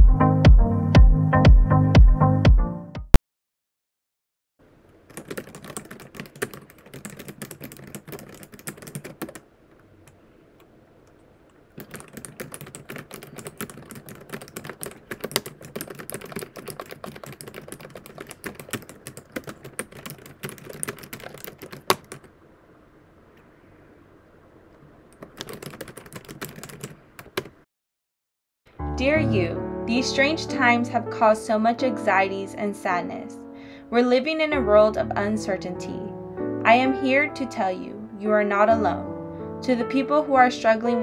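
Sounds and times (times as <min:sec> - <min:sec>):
computer keyboard typing: 0:05.1 - 0:09.4, 0:11.8 - 0:22.3, 0:25.1 - 0:27.6.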